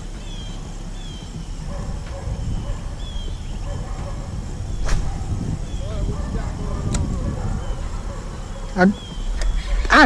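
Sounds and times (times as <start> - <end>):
wind noise on microphone: 0.0 - 10.0
bird chirps: 0.1 - 6.2, 7.4 - 9.8.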